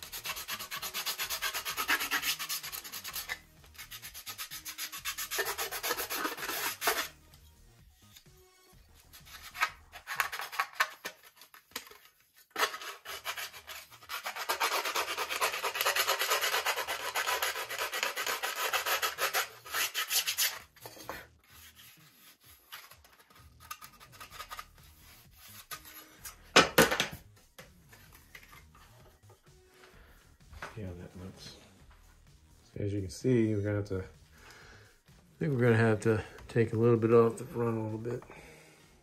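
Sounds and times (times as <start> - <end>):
hand sanding wood: 0.0 - 7.1, 12.6 - 20.6.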